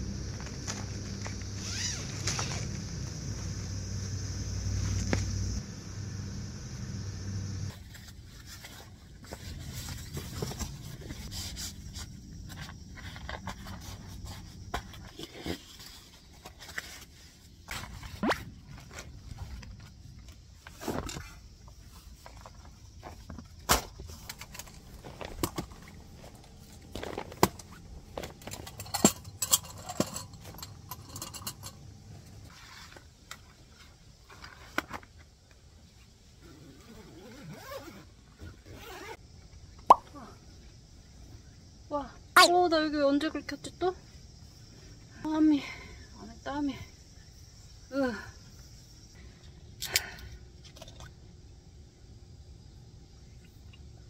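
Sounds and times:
objects being handled: 7.7 - 35.3.

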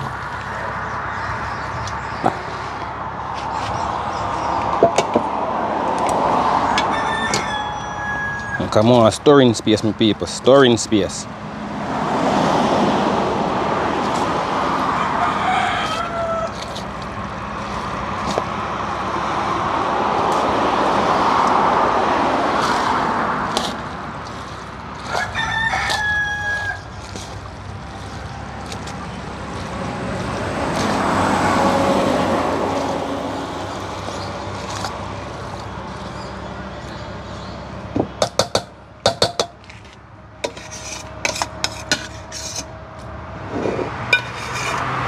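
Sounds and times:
rooster crowing: 6.5 - 8.7, 14.7 - 16.7, 25.1 - 27.0.

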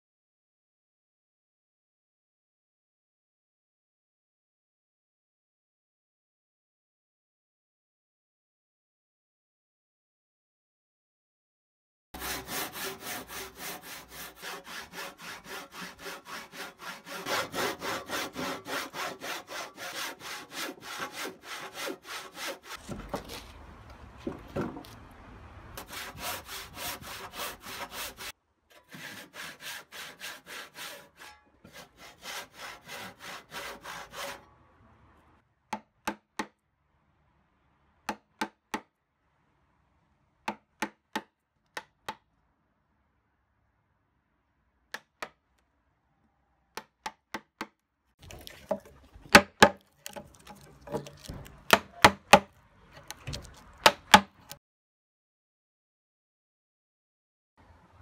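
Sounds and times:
hand saw cutting timber: 12.2 - 23.5, 25.8 - 34.4, 48.2 - 54.6
chisel paring wood clicks: 51.0 - 54.6.

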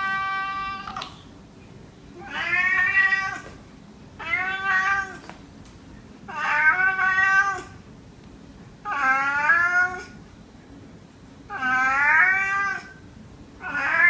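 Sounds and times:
cat meowing: 2.2 - 3.6, 4.2 - 5.3, 6.3 - 7.8, 8.9 - 10.2, 11.5 - 13.0, 13.6 - 14.0.

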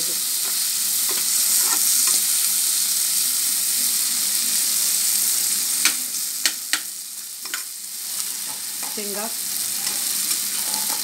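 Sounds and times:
potatoes sizzling in oil: 0.0 - 11.0
spoon tapping on pan: 5.8 - 7.7
metal spoon scraping pan: 9.8 - 11.0.

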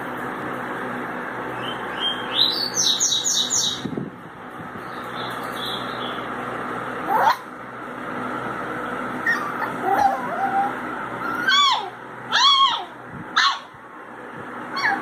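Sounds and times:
puppies squealing: 7.1 - 7.5, 9.2 - 13.7, 14.7 - 15.0.

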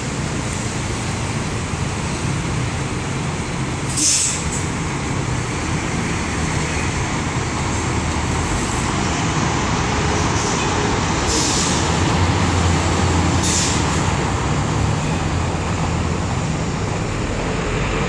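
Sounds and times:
monorail train humming past: 0.0 - 18.0
road traffic noise: 0.0 - 18.0
short hisses: 3.9 - 4.5.

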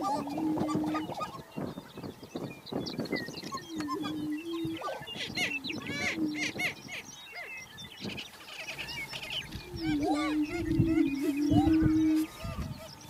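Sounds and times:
high cackling and whooping calls: 0.0 - 1.6, 3.5 - 6.9, 9.2 - 12.7
low booming bird notes: 0.0 - 13.0.

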